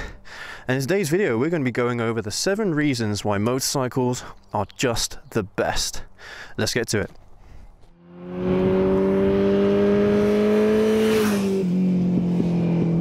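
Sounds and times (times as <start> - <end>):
vehicle engine accelerating: 7.9 - 13.0.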